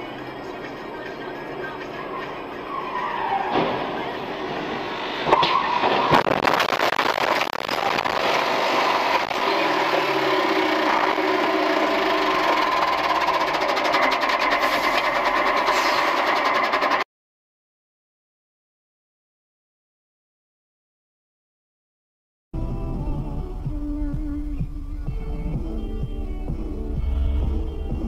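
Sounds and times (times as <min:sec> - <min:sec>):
vehicle collision bangs: 0:03.3 - 0:06.6
rattling engine running: 0:07.8 - 0:17.0, 0:23.7 - 0:28.0.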